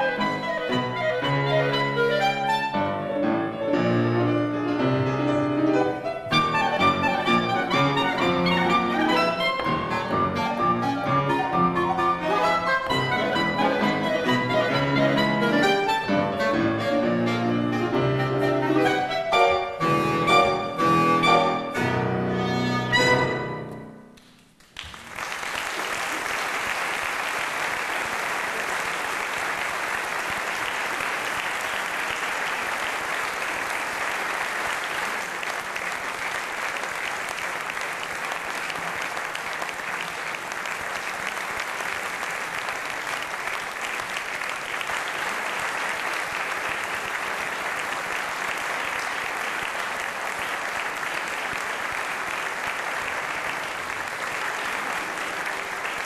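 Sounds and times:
audience applauding: 3.9s - 23.5s, 24.2s - 56.0s.

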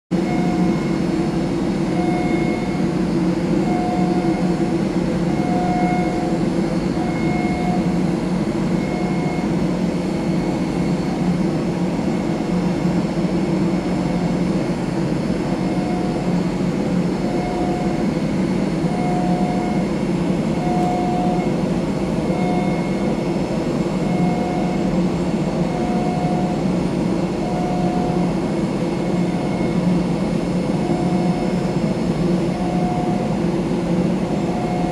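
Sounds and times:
machinery drone: 0.1s - 34.9s
faint pulsing whine: 0.2s - 34.9s.

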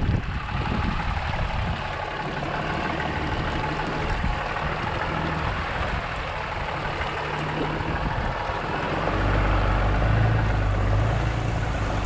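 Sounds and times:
diesel truck engine: 0.0s - 12.0s.

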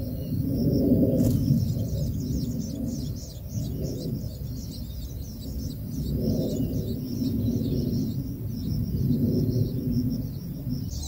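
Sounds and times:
nestlings begging chirps: 0.0s - 11.0s
steady low rumble: 0.0s - 11.0s.

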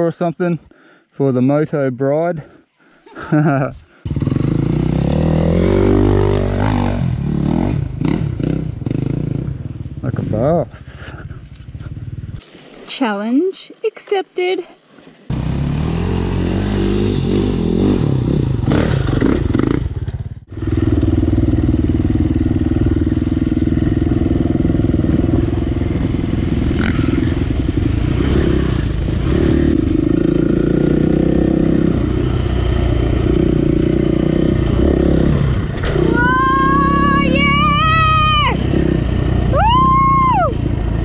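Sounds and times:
motorbike engine running: 15.3s - 41.0s.

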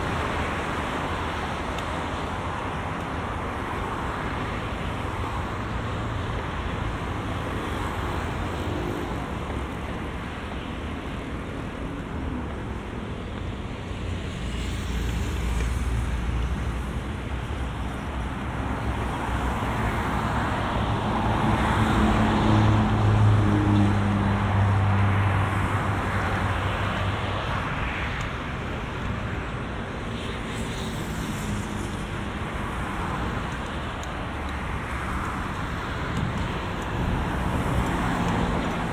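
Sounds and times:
cars passing: 0.0s - 38.9s.

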